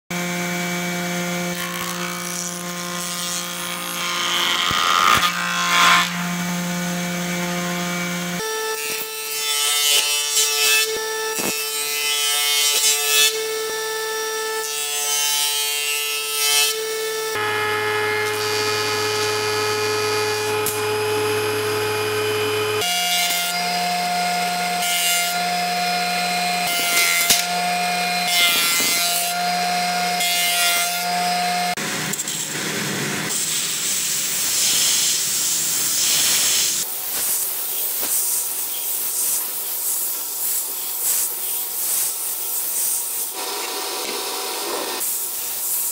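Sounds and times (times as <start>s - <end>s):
thickness planer running: 0.1s - 9.2s, 16.7s - 37.0s, 43.3s - 45.0s
cutter head planing wood: 0.1s - 37.0s, 43.0s - 45.9s
jointer humming: 17.1s - 33.3s.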